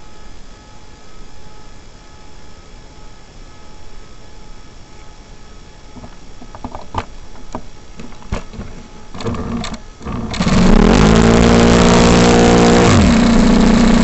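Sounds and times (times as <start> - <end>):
model engine running: 9.1 - 14.0
starter cranking buzz: 9.1 - 14.0.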